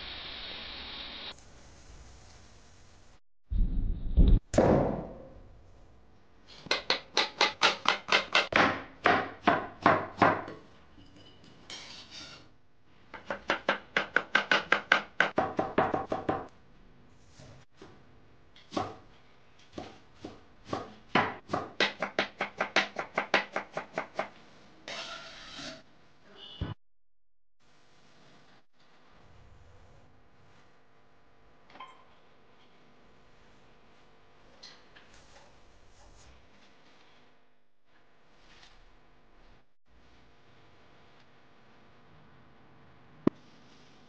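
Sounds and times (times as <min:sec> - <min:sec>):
knife chopping on wooden board: 0:06.7 - 0:10.6, 0:13.1 - 0:16.5, 0:19.7 - 0:24.3.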